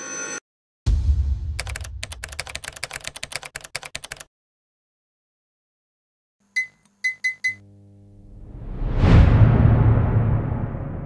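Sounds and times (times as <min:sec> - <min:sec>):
deep boom: 0:00.9 - 0:02.0, 0:08.4 - 0:11.0.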